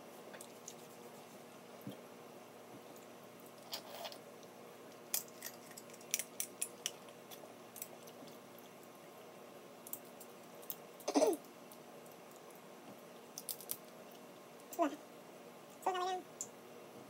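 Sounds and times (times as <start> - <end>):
crab shell cracking: 5.0 - 8.7, 13.3 - 14.0.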